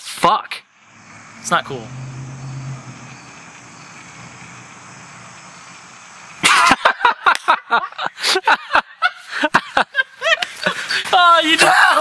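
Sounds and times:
background noise: 0.0 - 12.0
person laughing loudly: 6.4 - 10.7.

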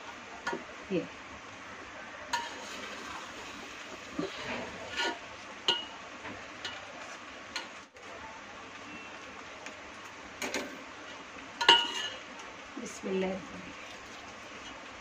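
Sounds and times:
steady low hiss: 0.0 - 15.0
metal spoon clinking on pot: 5.7 - 6.0, 11.6 - 12.2.

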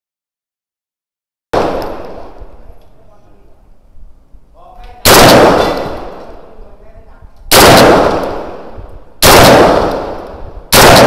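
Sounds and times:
echoing gunshots: 1.6 - 2.7, 5.0 - 6.6, 7.5 - 11.0.

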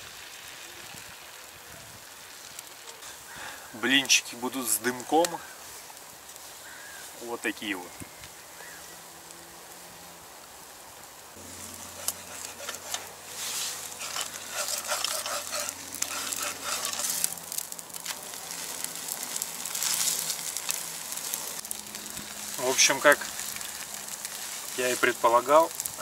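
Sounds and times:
batter sizzling in frying pan: 0.0 - 26.0
spatula clicking and scraping pan: 11.8 - 20.8.

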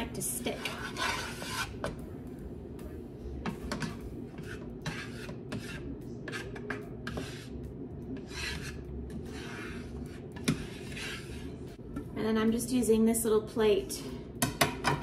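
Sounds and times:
spatula scraping frying pan: 0.1 - 1.9, 4.3 - 7.6, 8.2 - 11.8.

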